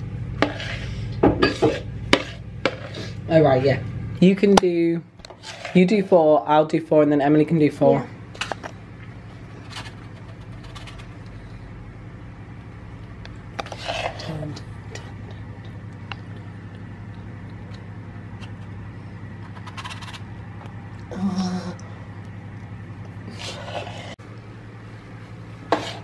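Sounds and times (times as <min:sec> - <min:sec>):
steady low hum: 0:00.0 - 0:26.0
spoon scraping batter: 0:00.4 - 0:03.0, 0:05.3 - 0:06.1, 0:13.5 - 0:20.4, 0:23.0 - 0:24.2, 0:25.7 - 0:26.0.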